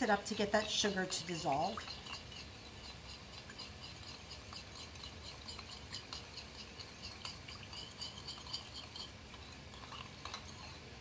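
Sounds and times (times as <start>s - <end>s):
utensil ticking against glass bowl: 0.0s - 10.8s.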